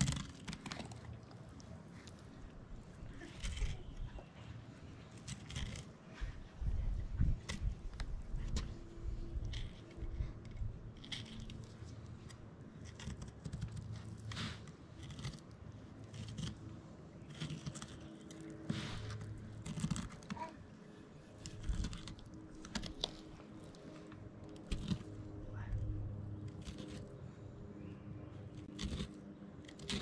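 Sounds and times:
faint low hum: 0:00.0 - 0:30.0
knife cutting through fish bones: 0:28.7 - 0:30.0.

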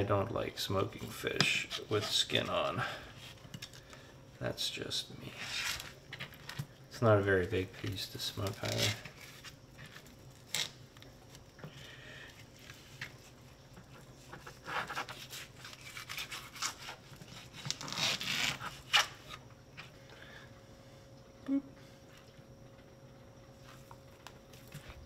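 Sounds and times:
knife scraping on plastic cutting board: 0:01.4 - 0:02.6, 0:14.2 - 0:19.4.

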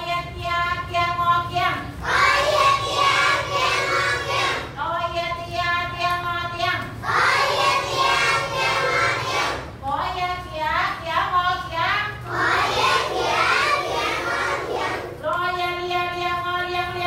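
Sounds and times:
children speaking syllables: 0:01.8 - 0:04.8, 0:07.0 - 0:09.8, 0:11.6 - 0:16.2
children chanting in unison: 0:02.0 - 0:04.8, 0:07.0 - 0:09.8, 0:12.2 - 0:15.2.

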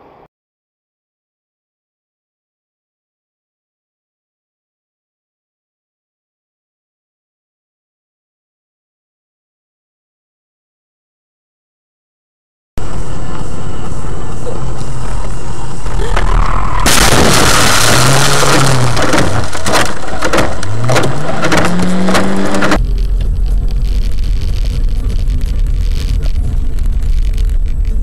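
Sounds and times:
car driving rumble: 0:12.8 - 0:28.0
car crash: 0:15.8 - 0:28.0
knocks and thuds: 0:16.9 - 0:26.4.

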